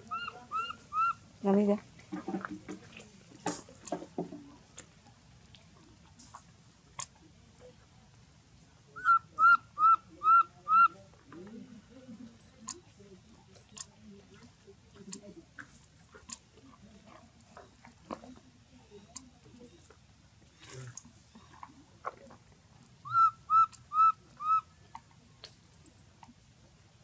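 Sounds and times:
baby monkey cooing: 0.0s - 1.2s, 9.0s - 10.9s, 23.1s - 24.7s
light clicks and rustles: 1.8s - 8.2s.

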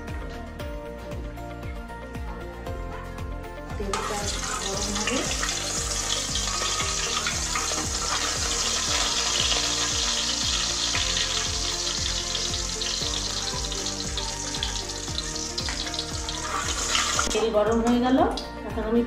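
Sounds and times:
cooking oil sizzling: 4.0s - 18.4s.

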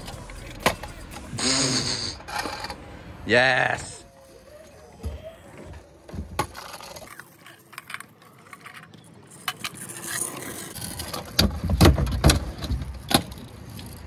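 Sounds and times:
scooter rolling on asphalt: 4.2s - 14.0s.

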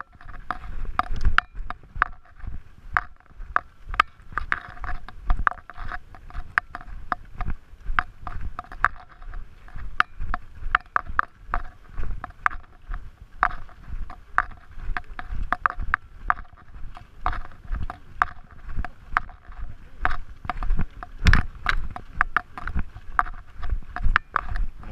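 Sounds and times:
footsteps on rocky trail: 0.0s - 24.9s
trekking poles clicking on rock: 0.0s - 24.9s
wind on microphone: 0.0s - 24.9s.

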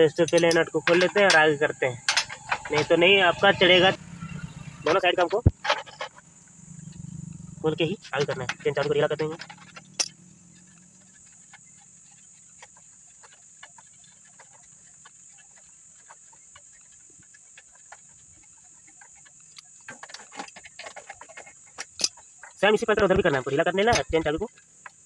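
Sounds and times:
steady high hiss: 0.0s - 13.7s
small metallic clicks and taps: 0.1s - 2.9s, 8.2s - 25.0s.

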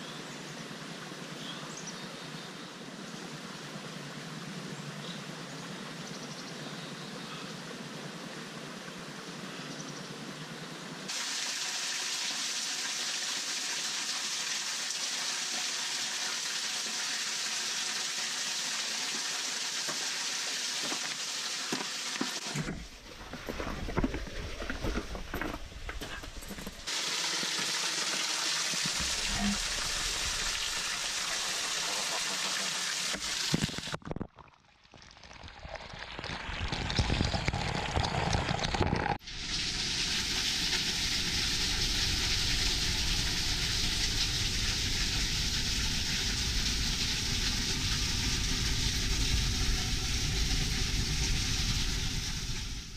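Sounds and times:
water rushing behind ice: 26.9s - 33.9s.

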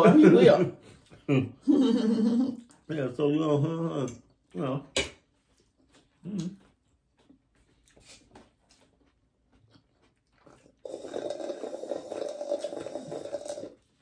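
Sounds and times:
chewing and mouth clicks: 5.4s - 14.0s
slurping through a straw: 10.4s - 14.0s.

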